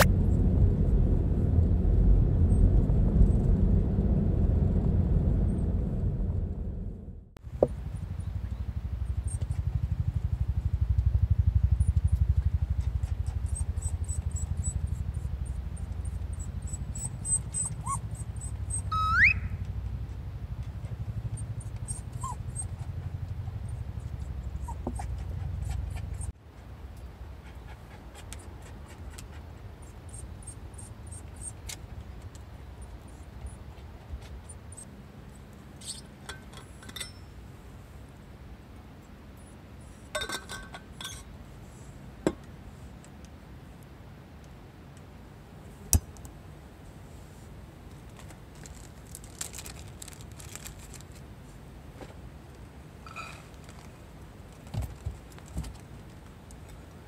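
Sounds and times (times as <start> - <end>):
steady low rumble: 0.0 - 29.2
dog whining: 13.0 - 15.3, 16.3 - 19.6, 21.4 - 23.0, 24.2 - 26.3
dog whimpering: 16.4 - 19.5, 21.4 - 22.9
light clinks: 35.8 - 37.4.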